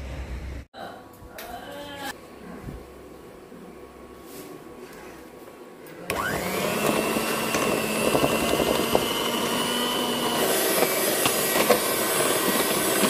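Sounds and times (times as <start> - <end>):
electric hand mixer whining: 6.1 - 13.0.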